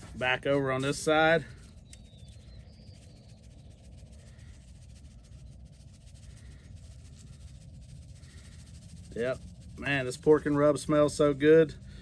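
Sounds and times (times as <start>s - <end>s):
distant bird calls: 0.7s - 9.0s.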